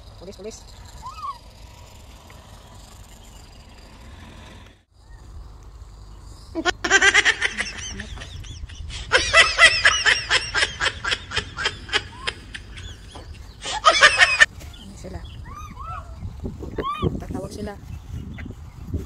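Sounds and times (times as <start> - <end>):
person laughing: 6.6 - 14.5.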